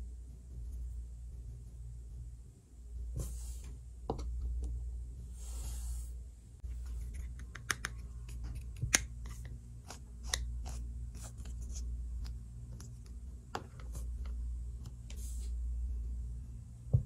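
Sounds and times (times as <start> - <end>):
plastic mould clicks and taps: 7.4 - 8.0.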